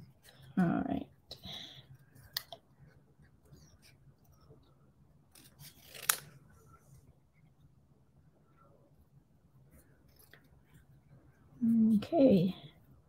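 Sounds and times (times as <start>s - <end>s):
scissors snipping paper: 5.3s - 6.3s.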